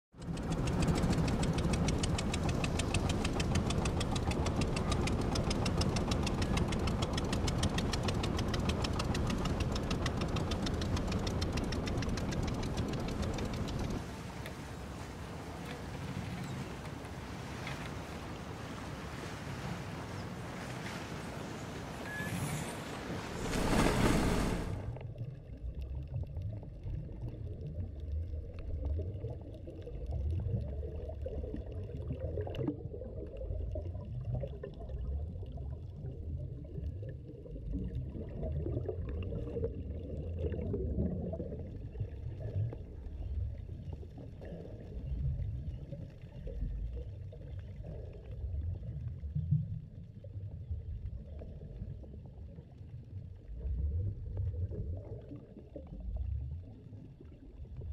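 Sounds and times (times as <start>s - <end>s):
muffled underwater rumble: 0.2s - 16.9s, 23.4s - 57.9s
air bubbles gurgling: 25.0s - 57.9s.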